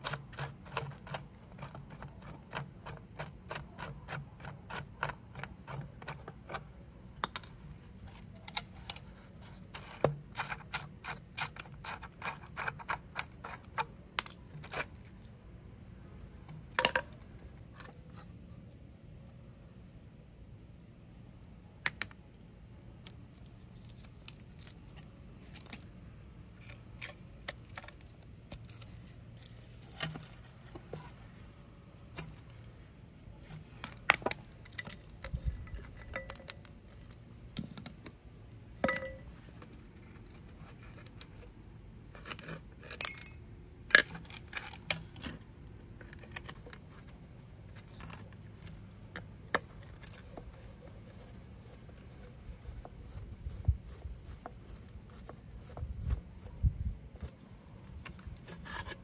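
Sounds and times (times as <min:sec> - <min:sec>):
screwdriver scraping metal plate: 0:08.1 - 0:15.2
metal tools clinking: 0:43.0 - 0:43.4.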